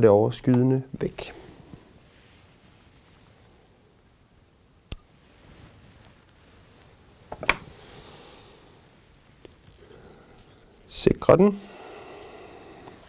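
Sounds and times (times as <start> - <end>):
rustle of handling: 5.2 - 7.0.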